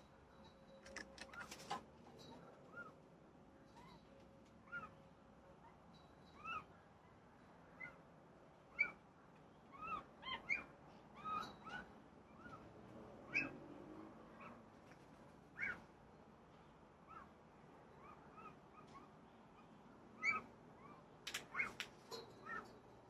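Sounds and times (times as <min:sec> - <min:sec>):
birds calling: 0:15.5 - 0:15.9, 0:18.0 - 0:22.8.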